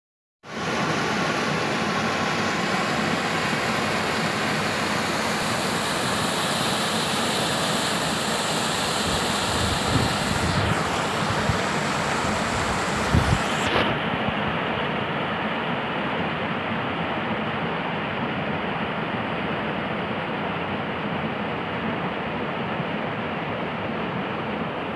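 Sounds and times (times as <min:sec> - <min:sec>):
waterfall rushing: 0:00.5 - 0:13.7
wind buffeting microphone: 0:09.5 - 0:13.6.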